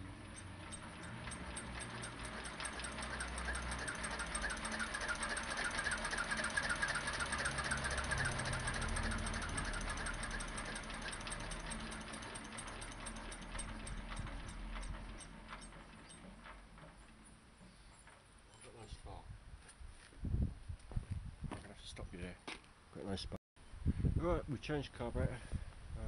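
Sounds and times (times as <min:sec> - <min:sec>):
stationary engine clattering: 0:00.0 - 0:18.3.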